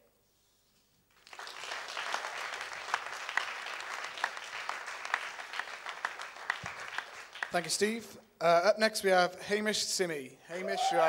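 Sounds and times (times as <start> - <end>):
audience applause: 1.2 - 7.7, 10.6 - 11.0.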